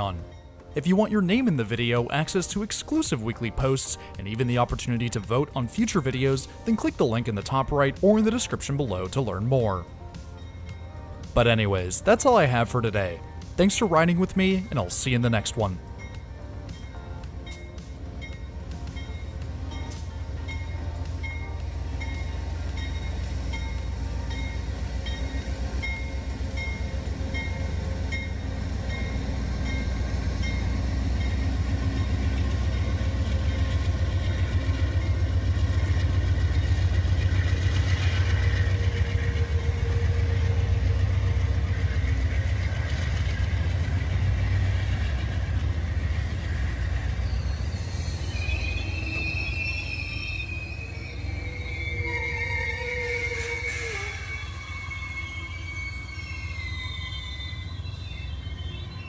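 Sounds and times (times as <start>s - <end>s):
diesel locomotive engine passing: 0.0s - 59.0s
train wheels clicking over rails: 19.7s - 47.8s.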